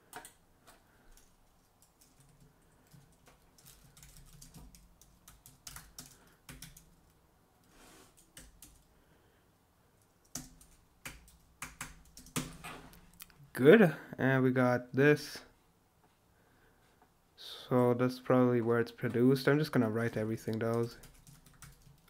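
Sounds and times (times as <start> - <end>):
faint keyboard typing: 0.0 - 9.0, 10.0 - 13.4, 20.0 - 22.0.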